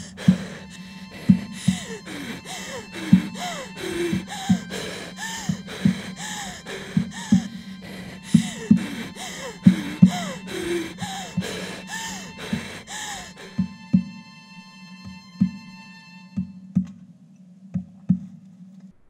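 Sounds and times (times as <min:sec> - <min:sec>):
woman wheezing gasps: 0:00.0 - 0:13.7
low regular thumps: 0:00.0 - 0:14.4.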